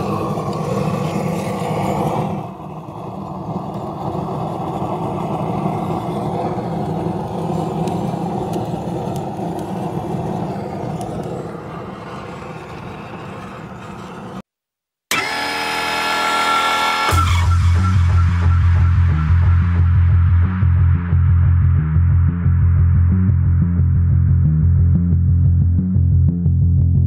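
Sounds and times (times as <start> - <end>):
propane torch burning: 0.0 - 14.4.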